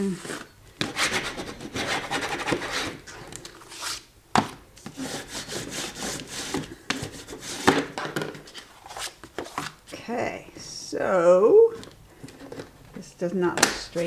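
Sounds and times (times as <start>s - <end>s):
hands rubbing paper on board: 0.9s - 3.0s, 4.9s - 7.8s.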